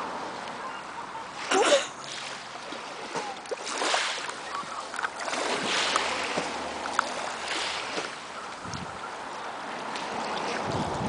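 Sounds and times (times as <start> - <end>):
water splashing and churning: 0.0 - 11.0
wind on microphone: 8.6 - 9.1, 10.1 - 11.0.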